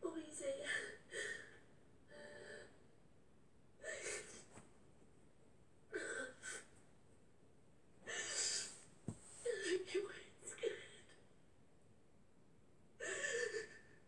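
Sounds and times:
woman sobbing through tv speaker: 13.0 - 14.0.

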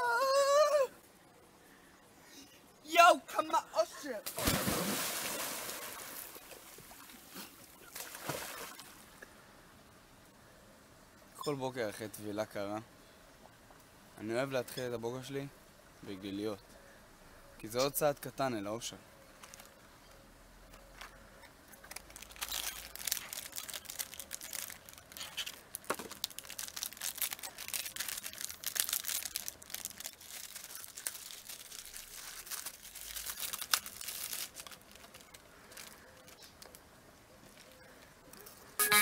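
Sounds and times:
plastic packet crinkling: 21.8 - 36.8.

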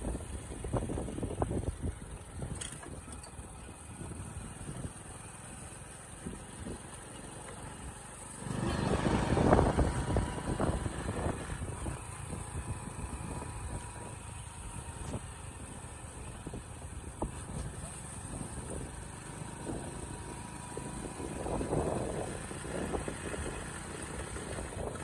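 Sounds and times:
wind rushing over microphone: 0.0 - 3.0, 8.8 - 14.2, 19.6 - 25.0
motorcycle engine cruising: 0.0 - 25.0.

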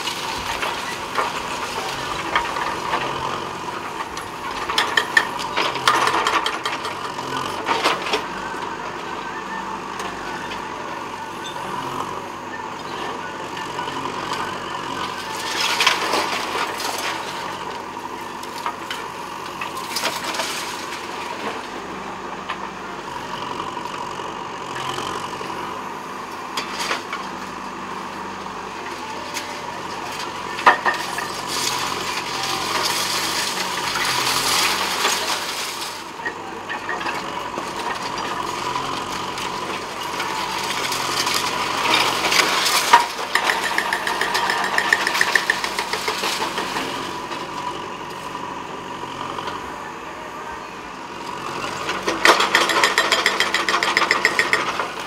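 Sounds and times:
rubble crashing and scraping: 0.0 - 8.4, 15.2 - 21.8, 28.8 - 38.8, 39.4 - 47.5, 51.9 - 55.0
diesel engine running: 0.0 - 55.0.

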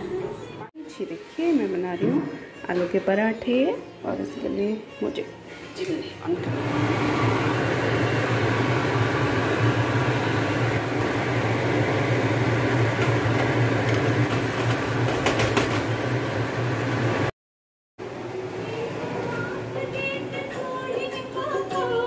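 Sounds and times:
bread frying hiss: 8.7 - 17.3.

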